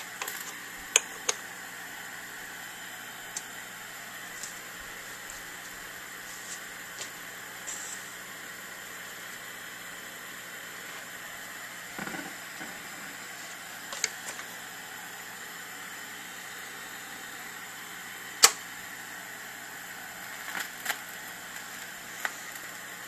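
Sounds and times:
steady hiss: 0.9s - 23.0s
turntable handling clicks: 18.4s - 18.6s.

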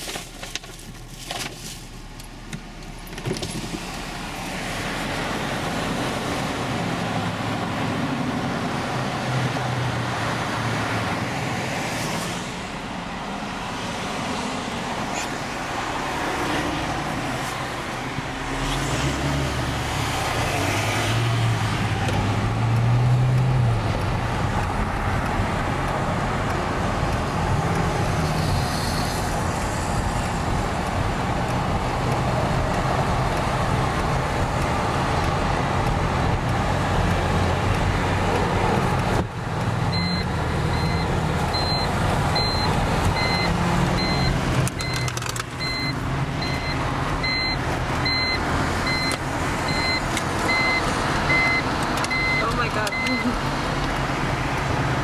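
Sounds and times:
car road and engine noise: 0.0s - 55.0s
short electronic beep: 40.0s - 53.3s.

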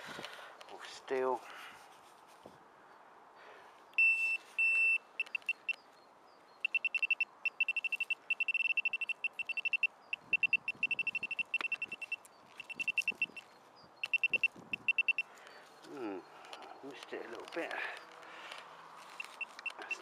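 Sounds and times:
metal detector probe beeping: 4.0s - 5.8s, 6.6s - 15.3s, 19.1s - 20.0s.

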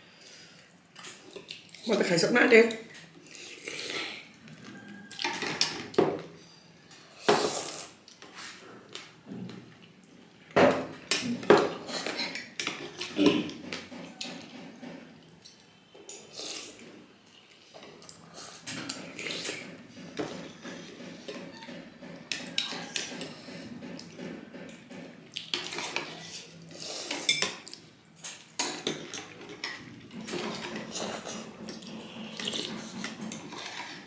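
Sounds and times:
cutlery clinking on bowls: 22.2s - 24.8s, 25.4s - 34.0s.

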